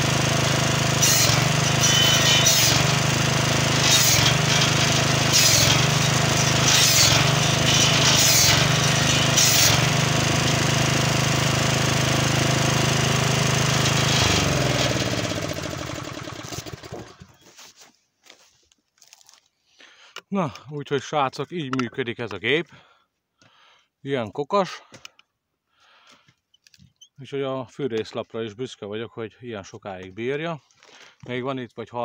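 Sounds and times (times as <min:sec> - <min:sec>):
circular saw engine running: 0:00.0 - 0:17.2
engine running down: 0:00.0 - 0:17.2
saw blade cutting logs: 0:00.0 - 0:17.4.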